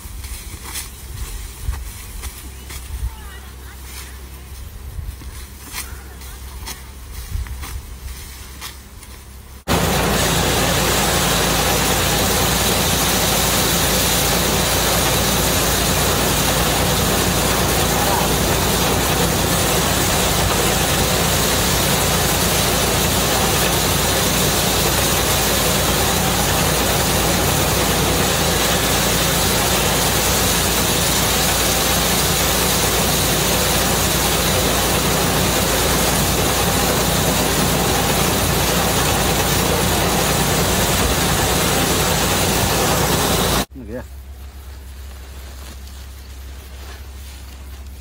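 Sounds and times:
rice thresher running: 0.0s - 48.0s.

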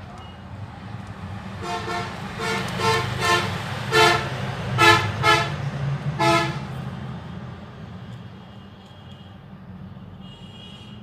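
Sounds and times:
vehicle horn toots: 1.6s - 5.5s, 6.2s - 6.6s, 10.2s - 11.0s.

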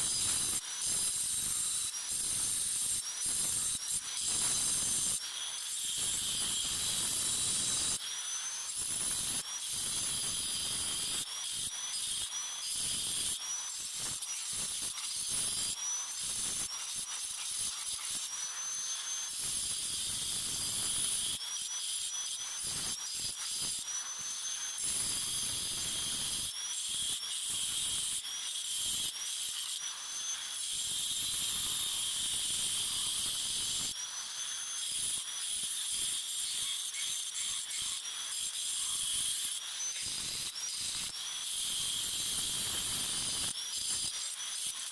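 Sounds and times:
angle grinder cutting ceramic: 0.0s - 44.9s.

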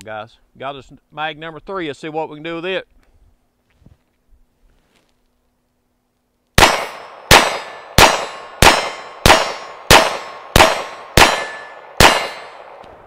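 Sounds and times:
pistol shots with ringing decay: 6.6s - 13.0s.

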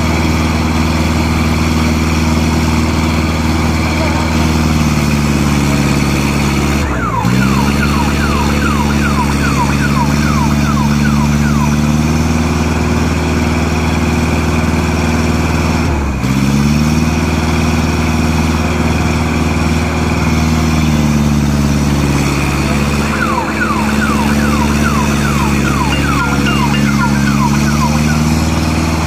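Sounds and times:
diesel engine under load: 0.0s - 29.0s
falling chirps: 7.0s - 12.0s, 22.4s - 28.5s.

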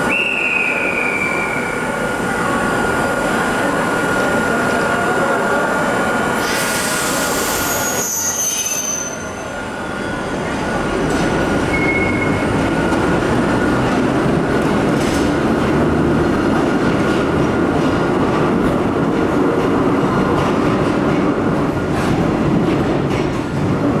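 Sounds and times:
train wheel squeal: 6.4s - 10.9s, 11.7s - 12.6s.

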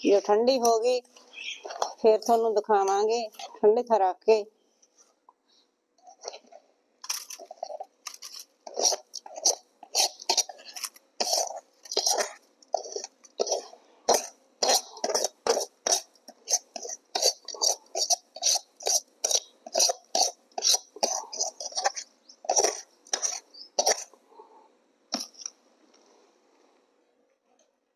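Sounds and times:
metal spatula scraping an iron pan: 7.6s - 24.1s.

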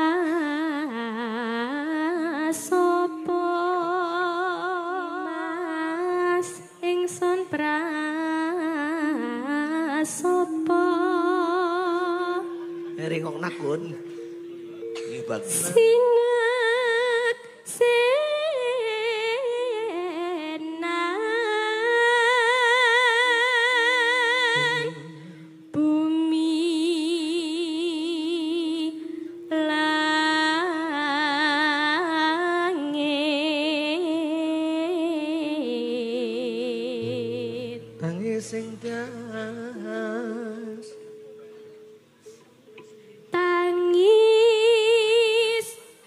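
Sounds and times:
woman singing with vibrato: 0.0s - 13.0s, 14.1s - 41.4s, 43.2s - 46.0s
low accompanying notes: 0.0s - 35.0s, 36.9s - 45.6s.

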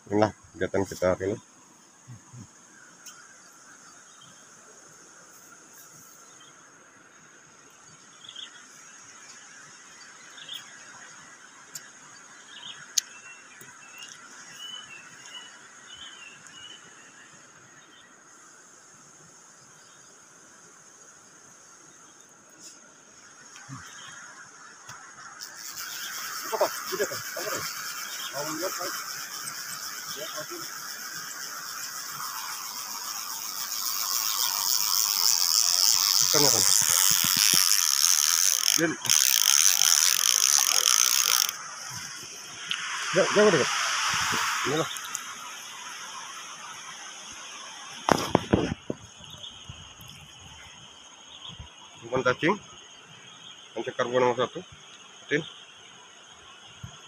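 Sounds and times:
high insect drone: 0.0s - 57.0s
stream rushing: 37.9s - 48.9s.

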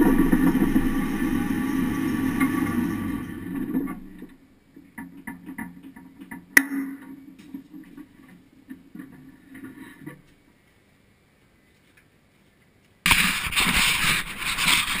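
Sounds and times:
loud rough scraping rumble: 0.0s - 4.4s, 13.1s - 15.0s
faint knocks and creaks: 3.4s - 10.9s.

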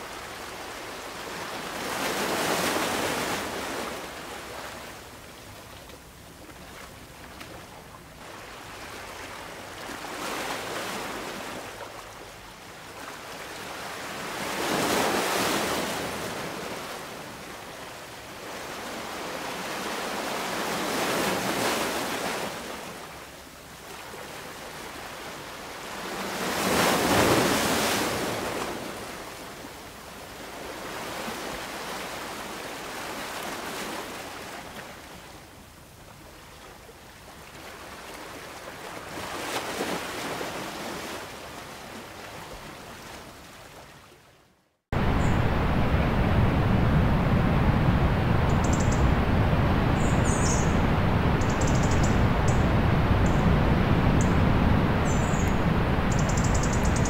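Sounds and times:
sea waves breaking: 0.0s - 5.8s, 6.5s - 23.0s, 45.0s - 57.0s.

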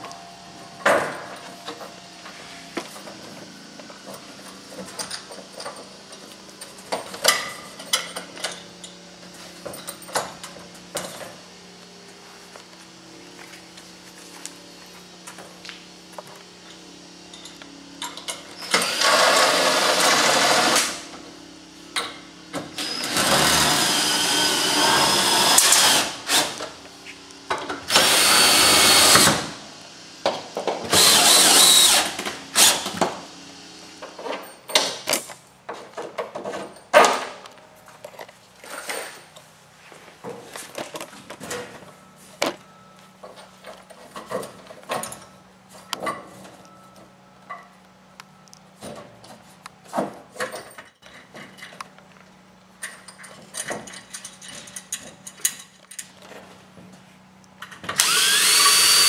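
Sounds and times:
cordless drill whining: 18.6s - 20.9s, 22.8s - 26.6s, 27.9s - 29.5s, 30.9s - 32.9s, 58.0s - 59.0s.

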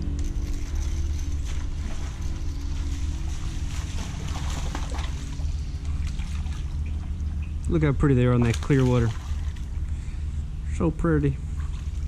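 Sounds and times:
steady low rumble: 0.0s - 12.0s
fish splashing at water surface: 1.7s - 7.4s, 8.4s - 9.8s.

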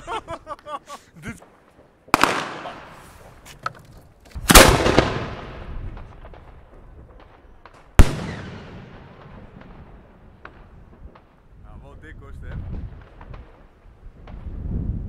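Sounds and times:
faint firework cracks: 1.4s - 3.4s, 4.4s - 11.4s.

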